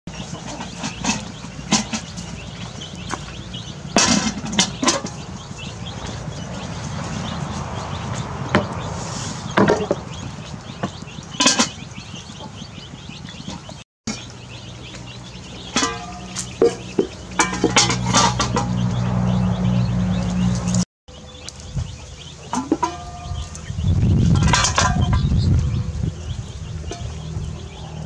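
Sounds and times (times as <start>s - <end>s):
metal pot and lid clanking: 15.7s - 18.8s, 22.5s - 23.5s, 24.4s - 25.3s
low rumble: 23.0s - 28.0s.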